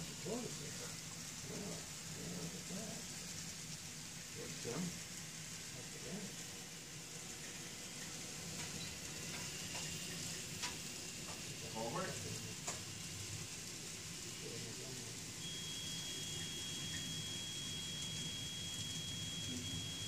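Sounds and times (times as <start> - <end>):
model train rolling hiss: 0.0 - 19.0
thin high whine: 15.4 - 20.0.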